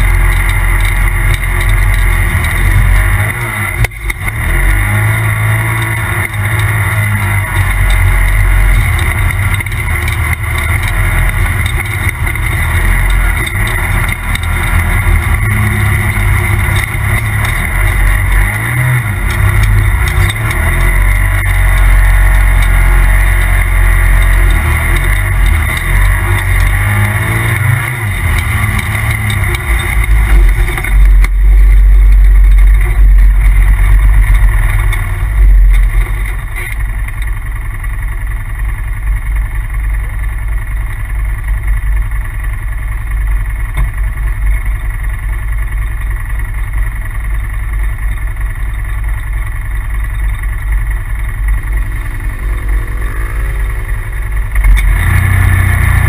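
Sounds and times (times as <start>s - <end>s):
turbocharged engine revving: 0.0s - 37.3s, 49.5s - 56.0s.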